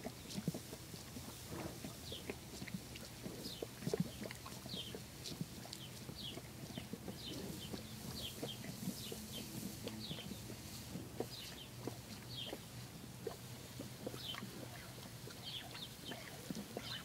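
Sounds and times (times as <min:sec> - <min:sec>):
horse lapping water: 0:00.0 - 0:17.0.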